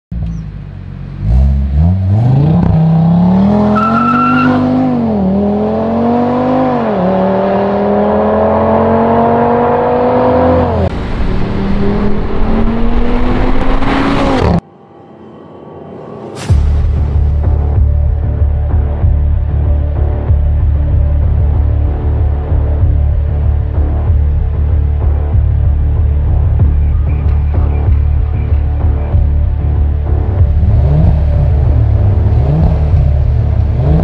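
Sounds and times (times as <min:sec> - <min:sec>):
car engine revving and accelerating: 0:01.0 - 0:14.6, 0:28.6 - 0:34.0.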